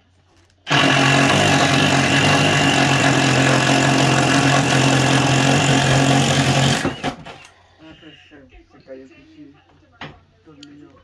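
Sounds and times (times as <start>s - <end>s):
cordless drill boring into wall: 0.7s - 7.5s.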